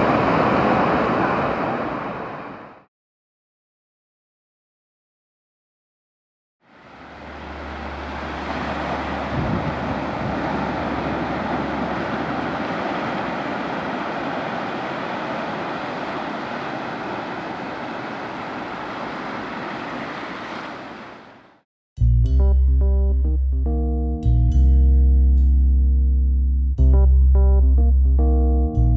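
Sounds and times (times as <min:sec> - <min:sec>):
surf washing over sand: 0:00.0 - 0:02.9, 0:06.7 - 0:21.6
low rumble: 0:07.0 - 0:12.7, 0:22.0 - 0:28.9.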